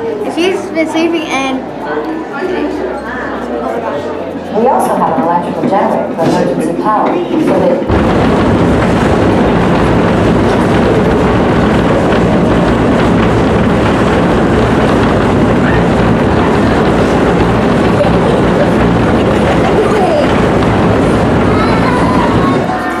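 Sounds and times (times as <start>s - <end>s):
earthquake simulator deep rumble: 7.8s - 23.0s.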